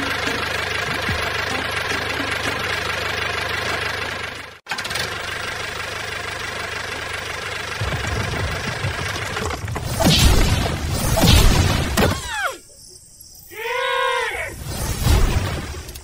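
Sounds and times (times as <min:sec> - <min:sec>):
engine running: 0:00.0 - 0:12.0
crashing rumble of tumbling rocks: 0:07.6 - 0:11.0.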